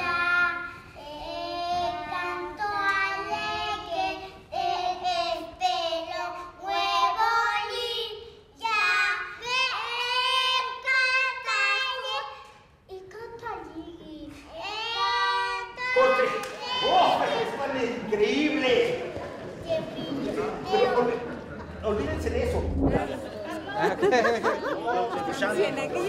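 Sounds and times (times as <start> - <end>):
girls singing together: 0.0 - 12.4.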